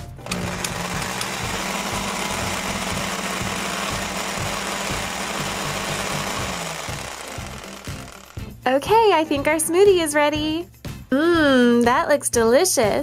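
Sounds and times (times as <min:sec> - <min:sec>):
toy blender motor buzzing: 0:00.2 - 0:08.5.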